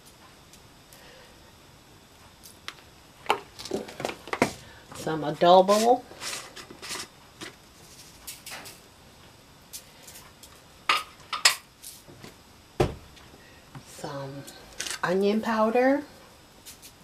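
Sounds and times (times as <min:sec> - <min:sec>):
dull thump: 0:12.8 - 0:13.1.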